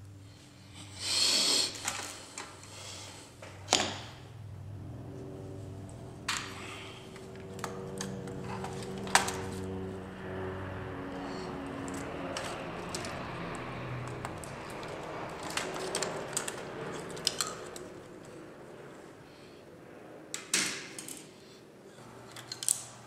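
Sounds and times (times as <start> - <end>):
plastic clicks and rustling: 14.0 - 17.9.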